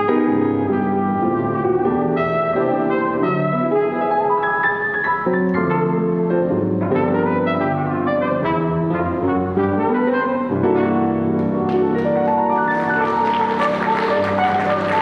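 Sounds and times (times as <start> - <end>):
brass and piano playing: 0.0 - 15.0
audience applause: 12.0 - 15.0.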